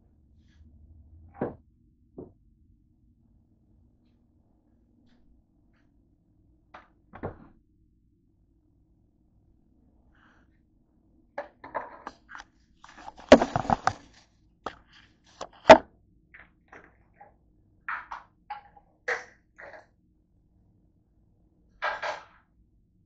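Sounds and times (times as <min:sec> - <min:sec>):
knocks and clatters on countertop: 0:01.4 - 0:01.6, 0:11.4 - 0:12.2, 0:12.9 - 0:14.0.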